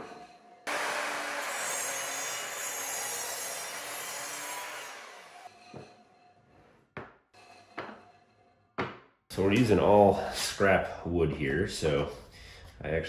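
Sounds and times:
miter saw cutting wood: 0.7 - 5.5.

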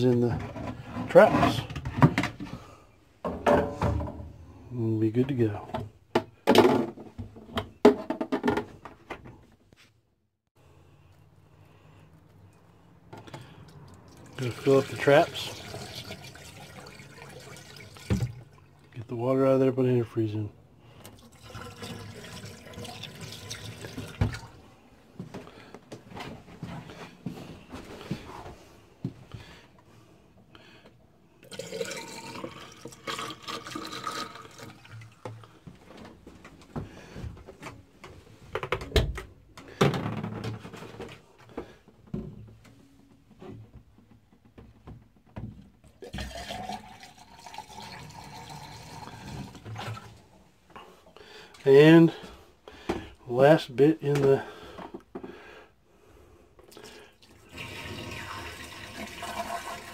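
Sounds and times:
liquid pouring into drain: 13.6 - 19.0, 21.0 - 24.6, 31.4 - 35.5, 46.0 - 50.3, 56.7 - 59.9.

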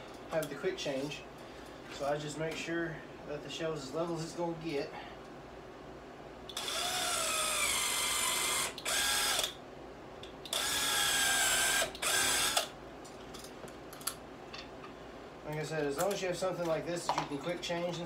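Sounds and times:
cordless driver whining into wood: 6.5 - 9.6, 10.5 - 12.7.

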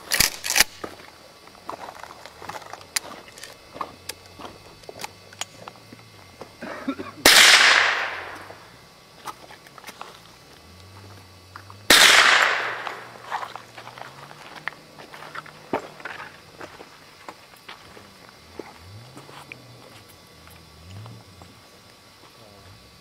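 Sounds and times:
rifle shots with echo: 7.2 - 8.5, 11.9 - 13.2.

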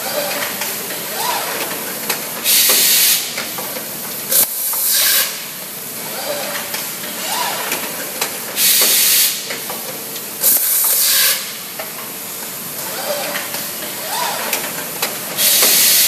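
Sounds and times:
pneumatic air hisses: 2.4 - 3.4, 4.3 - 5.6, 8.6 - 9.5, 10.4 - 11.7, 15.3 - 16.0.

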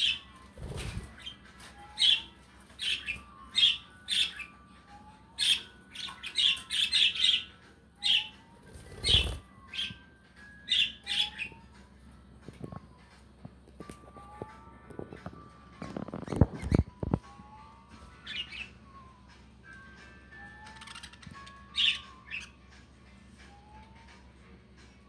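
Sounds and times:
budgerigars chirping: 0.0 - 0.3, 1.0 - 4.6, 5.4 - 10.0, 10.7 - 11.6, 18.2 - 18.8, 20.6 - 22.6.

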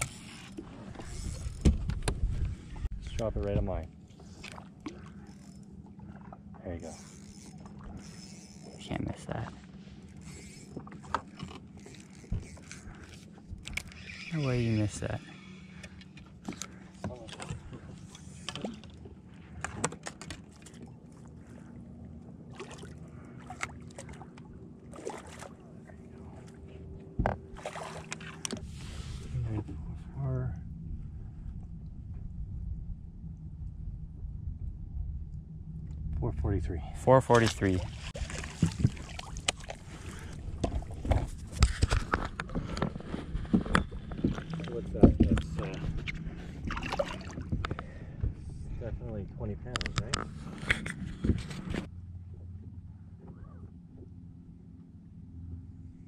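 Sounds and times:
trolling motor humming: 0.0 - 56.0
water noise around boat: 0.0 - 56.0
rod and reel clicks: 6.8 - 8.9, 10.0 - 18.9.

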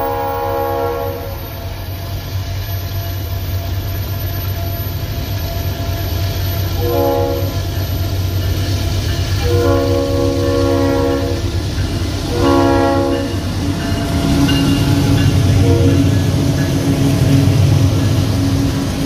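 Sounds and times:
locomotive air horn: 0.0 - 1.8, 6.8 - 7.7, 9.4 - 11.4, 12.3 - 13.4, 15.6 - 16.1
locomotive engine rumble: 0.0 - 19.0.

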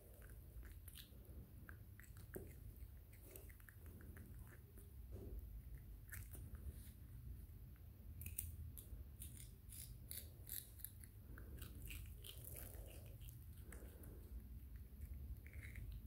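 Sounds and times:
monkey crunching vegetable: 8.1 - 16.0.

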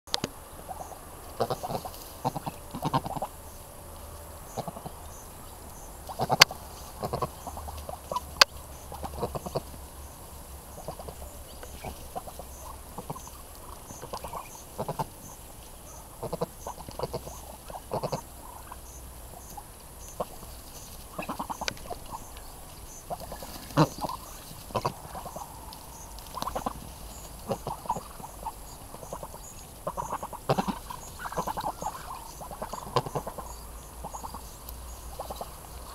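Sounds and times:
ducks calling softly: 0.1 - 35.9
ducks pecking: 0.1 - 35.9.

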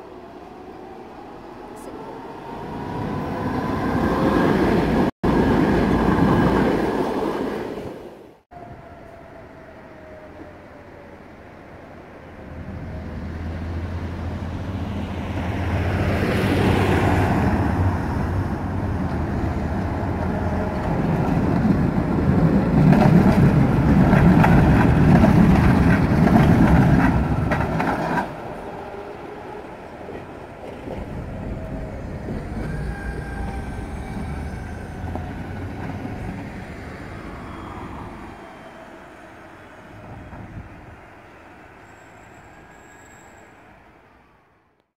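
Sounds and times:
street traffic: 0.0 - 44.9
tram wheels clattering on rails: 18.7 - 36.5.

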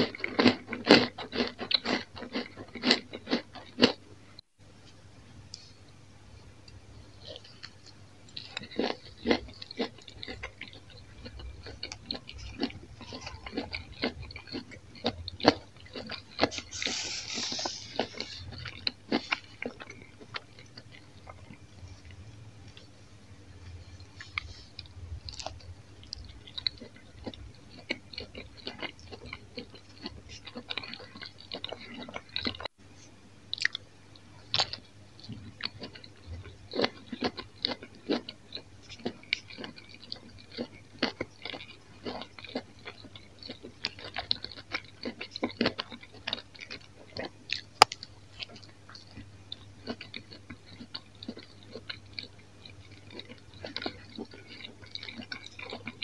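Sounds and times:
chewing pizza: 0.0 - 4.1, 7.2 - 23.0, 23.6 - 32.7, 33.5 - 56.0.

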